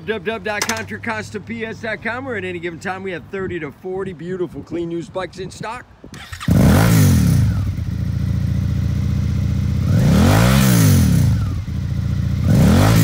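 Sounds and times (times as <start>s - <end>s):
motorcycle engine revving: 6.1s - 13.0s.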